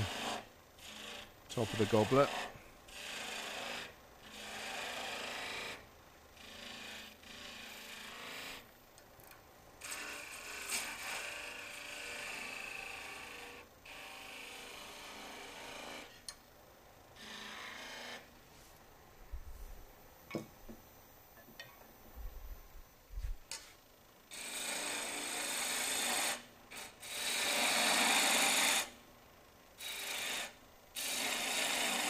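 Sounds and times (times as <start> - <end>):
lathe tool scraping wood: 0.0 - 8.7, 9.8 - 16.3, 17.2 - 18.6, 24.3 - 28.9, 29.8 - 32.0.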